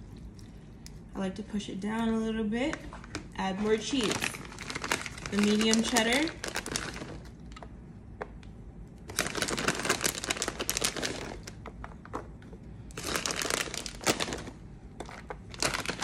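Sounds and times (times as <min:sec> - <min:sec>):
plastic bag crinkling: 0:02.9 - 0:07.6, 0:09.1 - 0:11.7, 0:12.9 - 0:16.0.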